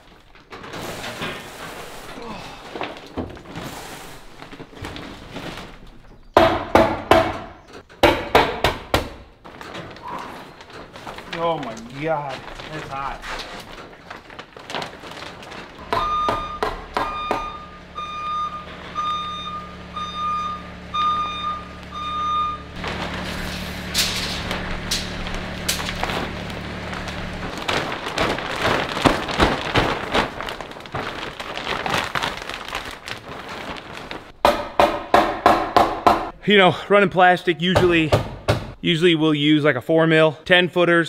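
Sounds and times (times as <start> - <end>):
plastic sheeting crackling: 0.0 - 6.3, 9.4 - 16.2, 22.7 - 34.6
motion alarm beeping: 16.0 - 22.8
drive motor humming: 16.9 - 29.0.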